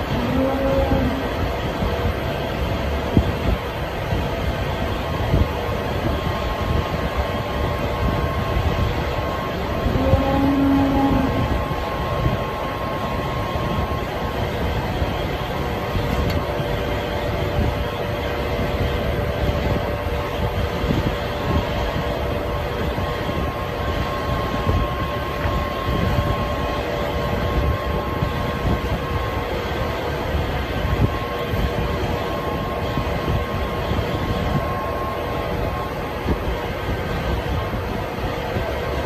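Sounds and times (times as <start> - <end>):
machinery droning: 0.0 - 39.0.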